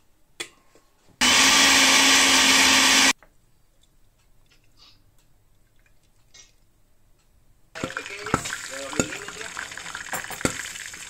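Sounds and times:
blender whirring: 1.2s - 3.2s.

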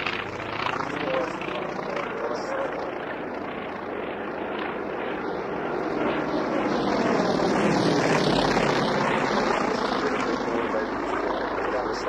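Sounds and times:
radial engine aircraft flypast: 0.0s - 12.0s.

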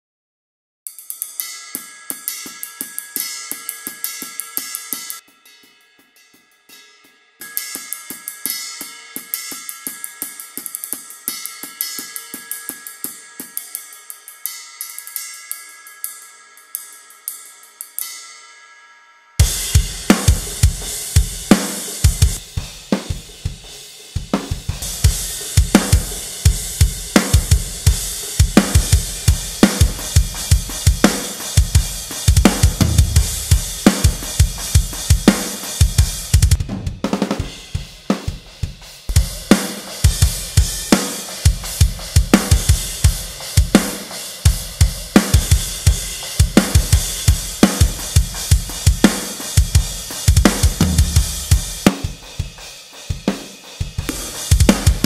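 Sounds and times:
hi-hat and cymbals: 0.9s - 18.3s, 19.4s - 55.0s
ringing cymbal tail: 0.9s - 55.0s
snare drum: 19.4s - 23.6s, 24.2s - 55.0s
fast kick drum: 19.4s - 55.0s.

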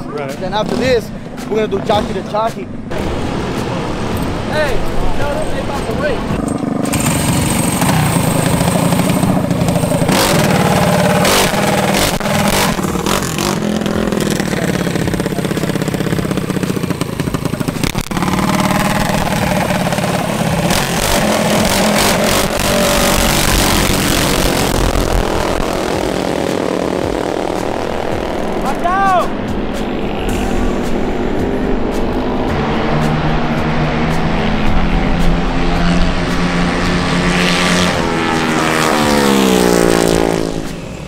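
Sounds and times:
small engine running and revving: 5.6s - 28.9s, 29.5s - 41.0s
drill starter spinning engine: 6.4s - 13.6s.

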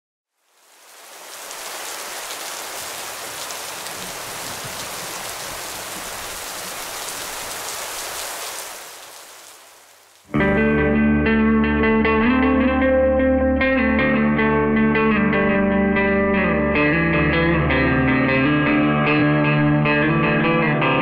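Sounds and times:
steady rain falling: 0.3s - 10.3s
guitar music: 10.3s - 21.0s.

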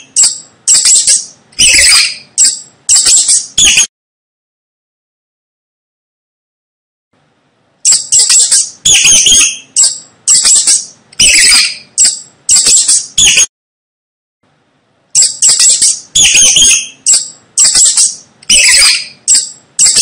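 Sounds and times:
mouse squeaking: 0.0s - 3.9s, 7.8s - 13.5s, 15.2s - 20.0s.

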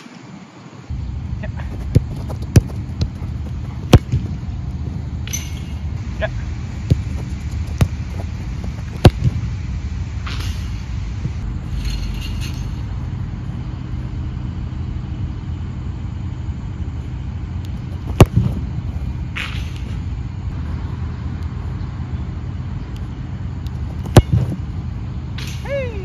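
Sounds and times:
low background rumble: 0.8s - 26.0s
football kicked: 1.6s - 5.7s, 6.8s - 9.5s, 17.8s - 20.0s, 23.9s - 24.7s.

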